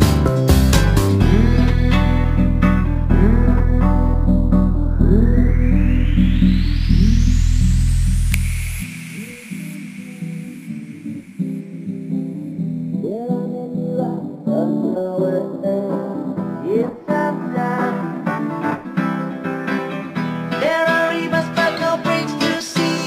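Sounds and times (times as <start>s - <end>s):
acoustic guitar music: 0.0s - 5.9s, 11.0s - 23.0s.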